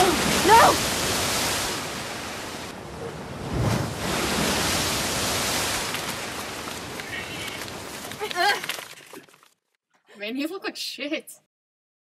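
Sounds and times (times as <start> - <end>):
rushing waves: 0.0 - 8.4.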